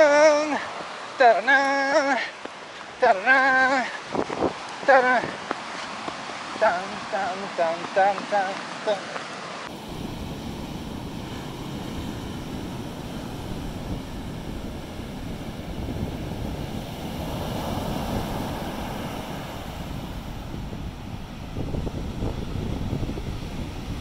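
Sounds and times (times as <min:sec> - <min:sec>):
ocean surf breaking on beach: 0:00.0 - 0:24.0
wind buffeting microphone: 0:03.9 - 0:06.4, 0:09.7 - 0:24.0.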